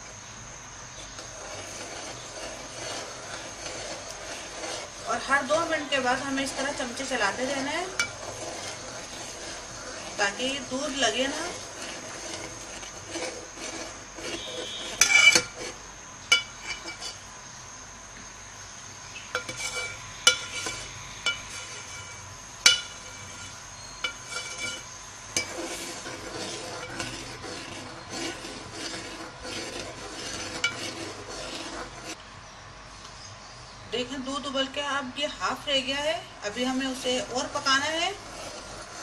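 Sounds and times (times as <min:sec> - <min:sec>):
metal spoon scraping a metal pot: 0:01.0 - 0:17.2, 0:19.2 - 0:32.2, 0:36.5 - 0:39.0.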